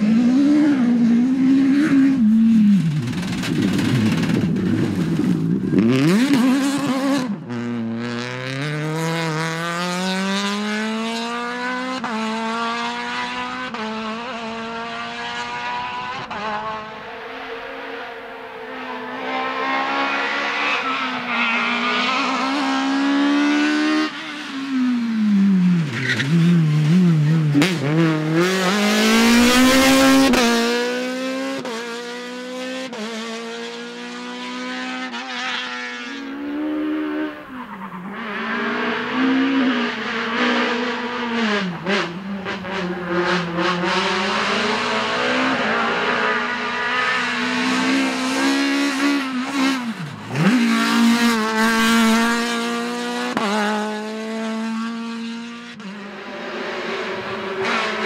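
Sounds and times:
rally car engine revving: 0.0 - 58.0.

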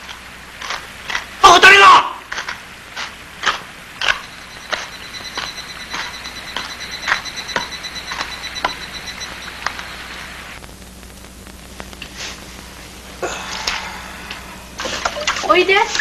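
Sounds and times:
footsteps walking: 2.4 - 8.8
rapidly pulsing high trill: 4.0 - 10.2.

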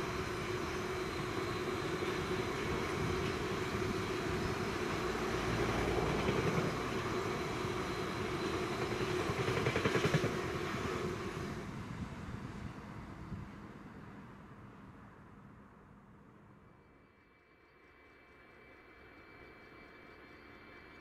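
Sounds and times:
train wheels clattering on rails: 0.0 - 11.4.

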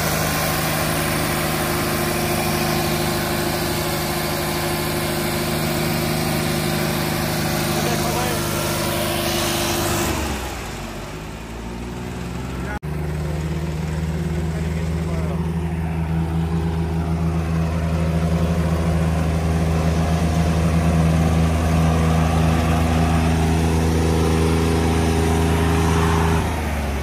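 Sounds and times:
tractor diesel engines running hard: 0.0 - 27.0.

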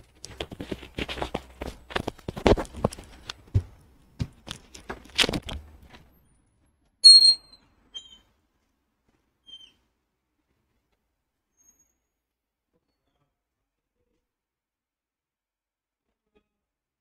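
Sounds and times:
high-pitched chirp: 7.0 - 8.2.

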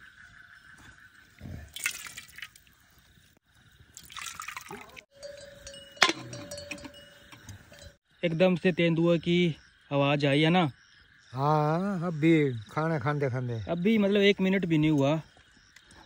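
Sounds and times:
sharp metal clank: 5.6 - 8.0.

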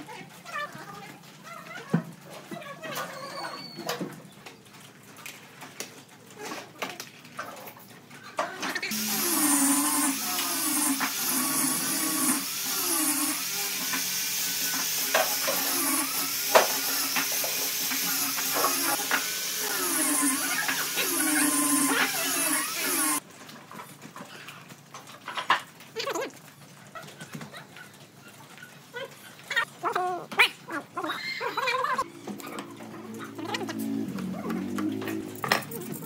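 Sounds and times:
power tool motor running: 8.9 - 23.2.

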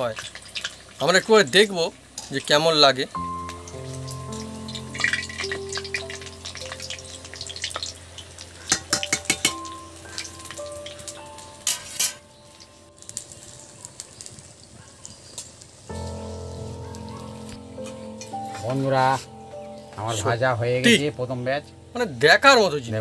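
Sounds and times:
deep-frying in hot oil: 0.0 - 23.0
skimmer clinking against metal pan: 8.6 - 12.3.

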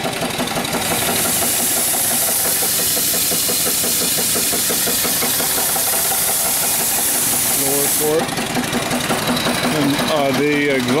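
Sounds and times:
small steam engine running: 0.0 - 11.0
high hiss of steam: 0.9 - 8.2.

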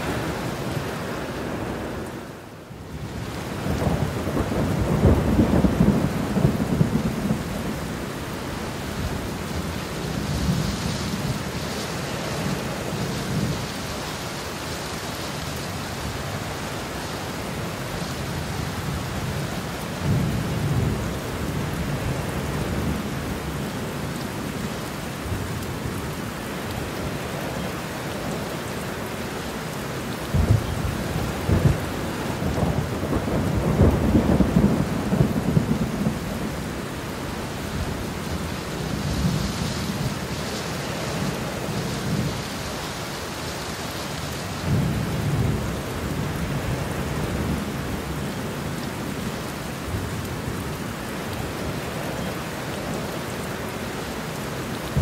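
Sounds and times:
heavy rain: 0.0 - 55.0
thunder rumbling: 3.0 - 8.3, 30.2 - 40.5, 54.8 - 55.0.

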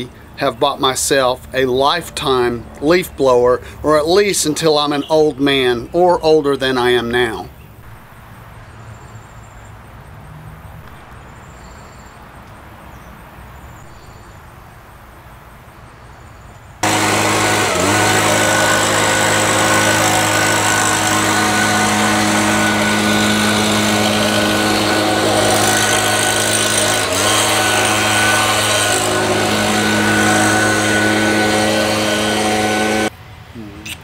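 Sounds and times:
leaf blower engine whine: 0.0 - 5.9, 16.8 - 34.0.

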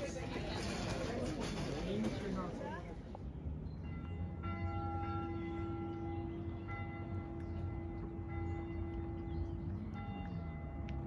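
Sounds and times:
church bell ringing: 3.8 - 11.0.

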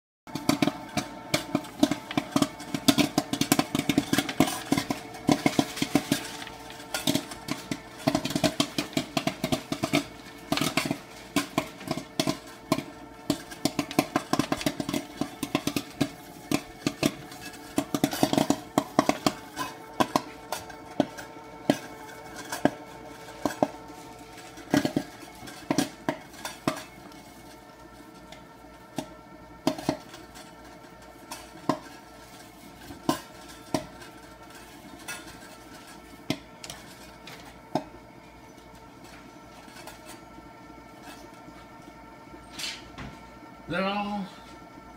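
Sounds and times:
kernels knocking against kettle: 0.3 - 27.5, 31.2 - 32.1, 32.8 - 37.9
popcorn popping: 0.3 - 44.9.

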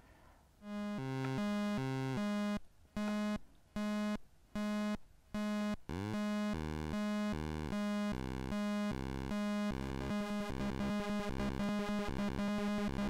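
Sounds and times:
buzzy square-wave synthesizer tones: 0.6 - 13.0.

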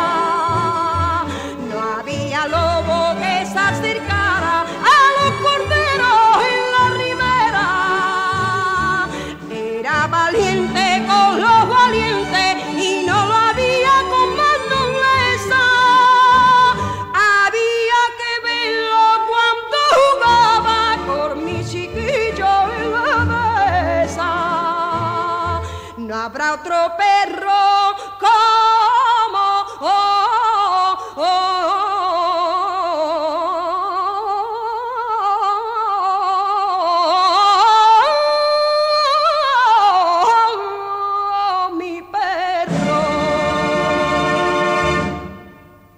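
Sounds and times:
woman singing with vibrato: 0.0 - 45.9
instrumental accompaniment: 42.7 - 45.9.

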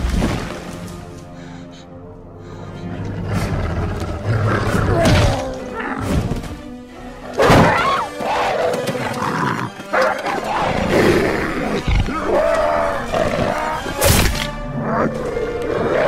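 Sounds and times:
dramatic orchestral score: 0.0 - 16.0
dogs growling: 8.4 - 13.8.

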